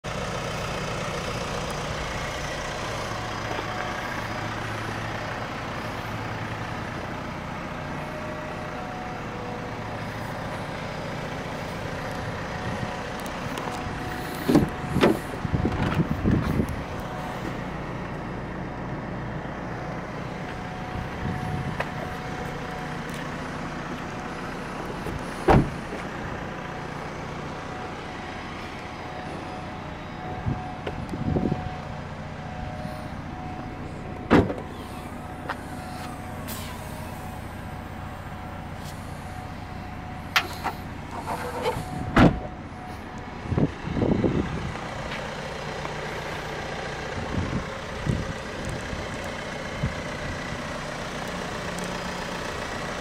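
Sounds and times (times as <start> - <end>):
diesel car engine idling: 0.0 - 53.0
car door clunks: 14.4 - 16.4, 25.4 - 26.1, 34.2 - 34.8, 40.3 - 42.6
door shutting thump: 25.5 - 25.7, 34.3 - 34.6, 42.1 - 42.5.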